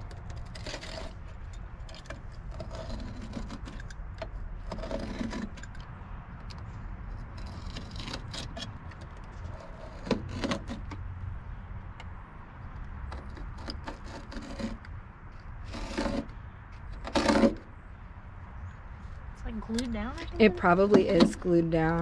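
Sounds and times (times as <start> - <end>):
utility knife scraping carpet: 2.0 - 3.9, 13.2 - 14.9, 15.6 - 16.4, 17.0 - 17.6.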